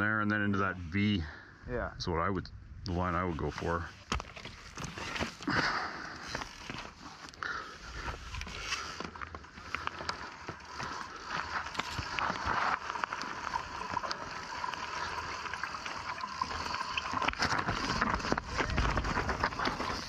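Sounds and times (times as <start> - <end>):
tyres skidding over gravel: 3.9 - 20.0
bike rattling: 16.8 - 20.0.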